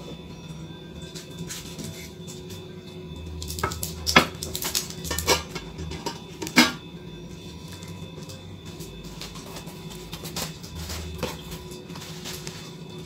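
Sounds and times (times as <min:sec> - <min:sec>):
glass dish and lid clinking: 0:03.5 - 0:06.8.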